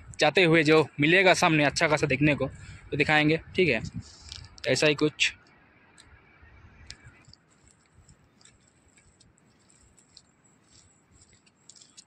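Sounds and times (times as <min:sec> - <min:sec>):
soft clicks: 0:06.8 - 0:12.0.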